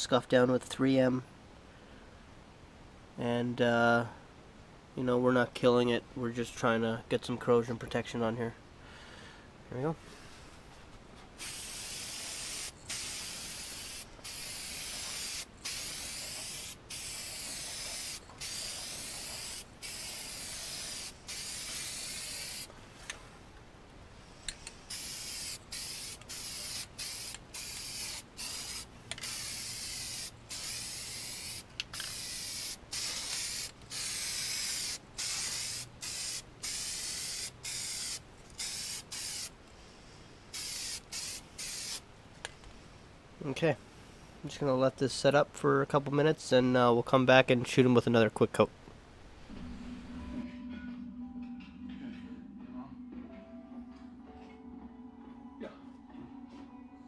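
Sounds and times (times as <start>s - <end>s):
spray can hissing in bursts: 11.4s - 22.7s, 24.5s - 39.6s, 40.5s - 42.0s.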